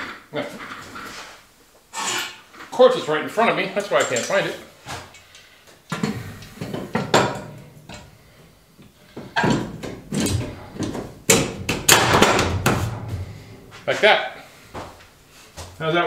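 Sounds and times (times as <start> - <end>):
metal knocking and scraping: 5.9 - 8.3, 9.0 - 13.8.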